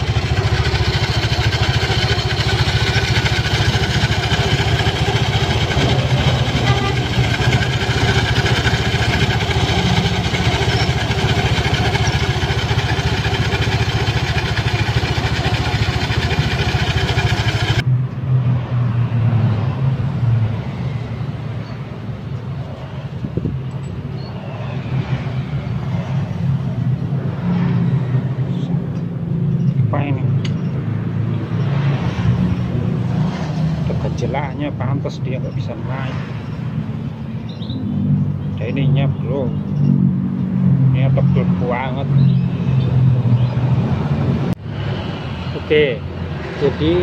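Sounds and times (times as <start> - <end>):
belt and pulleys spinning: 0.0 - 17.8
scooter engine running: 0.0 - 17.9.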